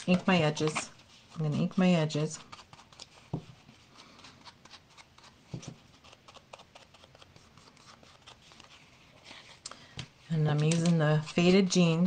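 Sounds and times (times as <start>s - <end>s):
ink pad scratching and tapping paper: 0.0s - 3.6s, 10.4s - 12.0s.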